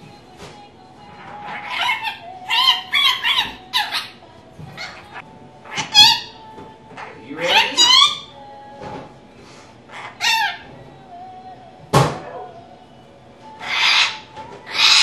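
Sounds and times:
parrot chattering and squawking: 1.2s - 4.2s, 4.8s - 6.4s, 7.0s - 8.4s, 9.9s - 10.7s, 13.6s - 15.0s
parrot screech: 1.3s - 4.2s, 4.8s - 6.3s, 13.6s - 15.0s.

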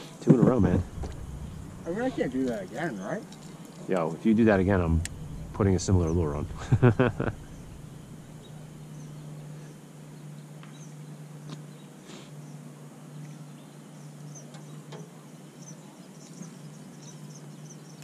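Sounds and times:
steady low hum: 0.2s - 11.5s.

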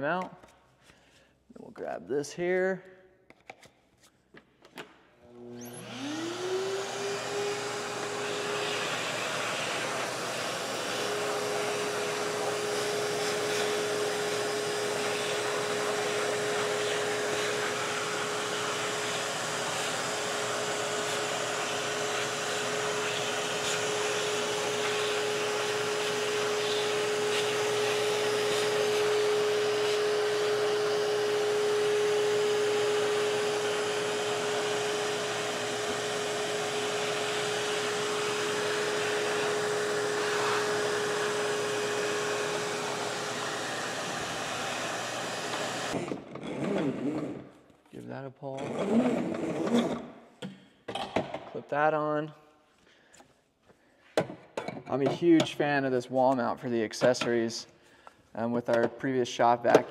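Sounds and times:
vacuum motor whine: 5.3s - 47.4s.

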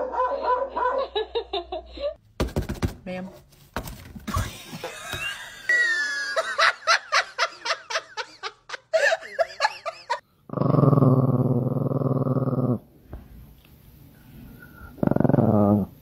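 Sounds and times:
small dog growling: 10.5s - 12.8s, 14.6s - 16.0s.

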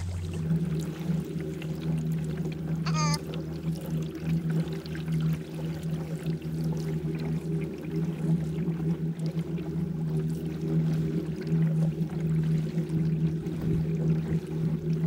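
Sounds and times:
water swishing and trickling: 0.0s - 15.0s.

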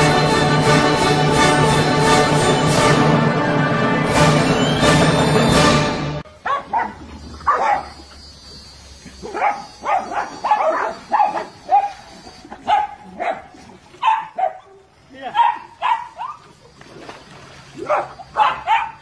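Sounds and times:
music: 0.0s - 6.2s
dog yipping and whining: 6.5s - 13.4s, 17.9s - 19.0s.

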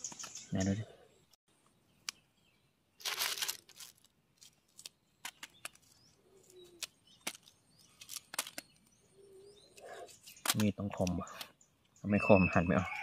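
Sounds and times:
rustle: 3.0s - 8.8s.

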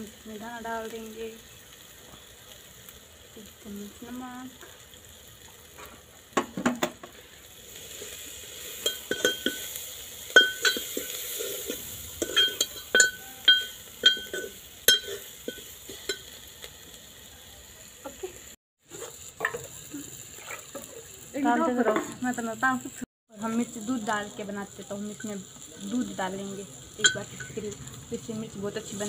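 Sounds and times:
faint sizzle: 0.0s - 29.0s
spoon clinking in a metal pot: 8.8s - 16.4s.

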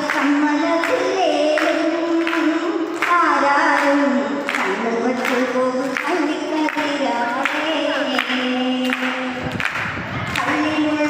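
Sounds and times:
woman singing into microphone: 0.0s - 11.0s.

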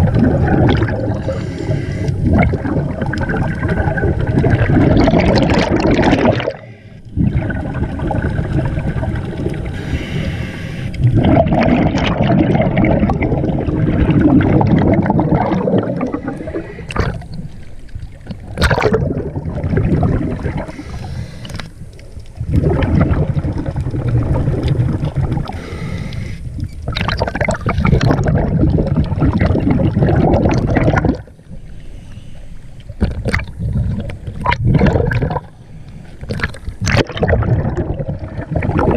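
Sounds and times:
exhaled bubbles underwater: 0.0s - 31.8s, 32.8s - 38.9s
diver breathing through regulator: 1.1s - 2.4s, 6.4s - 7.2s, 9.7s - 11.2s, 16.0s - 17.4s, 20.6s - 21.8s, 25.4s - 26.6s, 31.5s - 32.8s.

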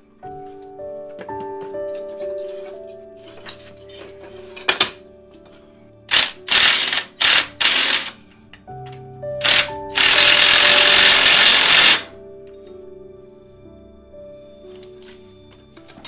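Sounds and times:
background music: 0.0s - 16.0s
impact wrench hammering: 6.1s - 8.1s, 9.4s - 12.1s.

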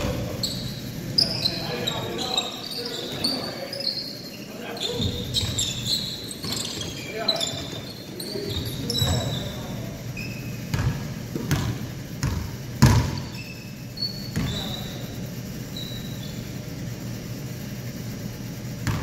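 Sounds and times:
sneakers squeaking on court: 0.0s - 17.1s
basketball bouncing on wood floor: 5.0s - 7.8s, 10.6s - 13.4s, 14.3s - 14.7s, 18.8s - 19.0s.

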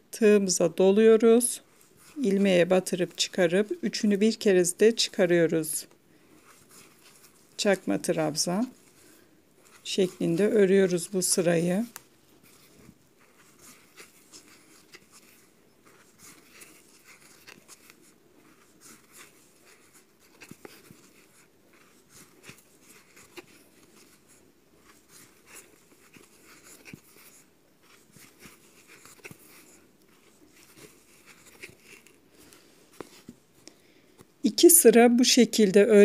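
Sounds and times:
yarn rustling while crocheting: 0.0s - 33.6s.

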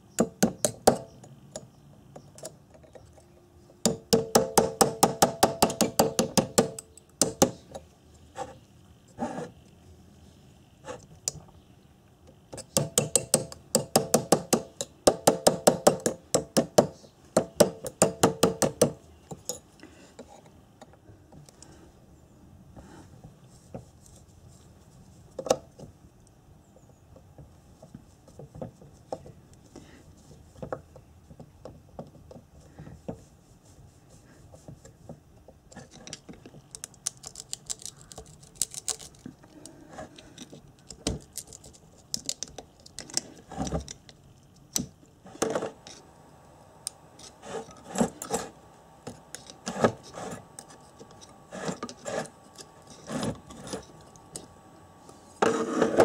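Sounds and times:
screwdriver clicking and scraping metal: 35.7s - 39.3s, 47.2s - 54.5s.

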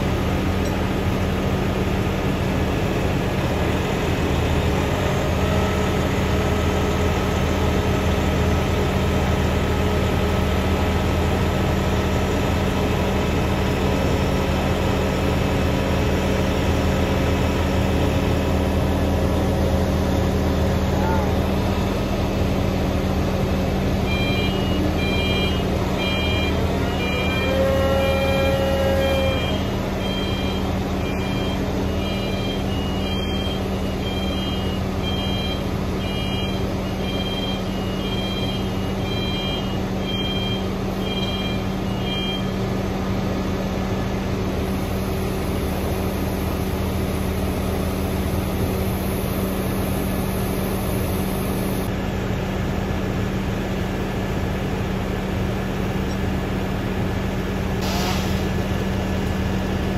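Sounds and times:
diesel engine running: 0.0s - 59.9s
electronic warning beeper: 24.0s - 42.6s.

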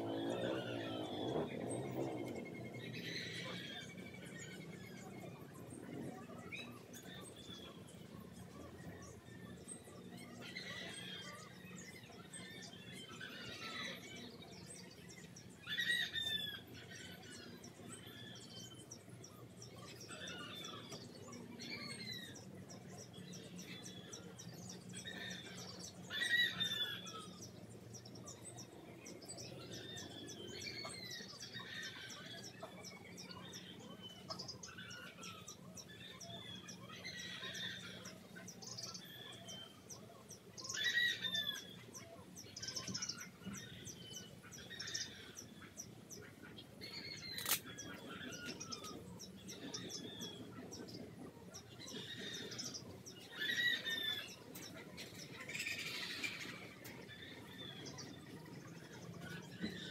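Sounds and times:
birds chirping: 0.0s - 59.9s
sharp click: 47.4s - 47.7s.

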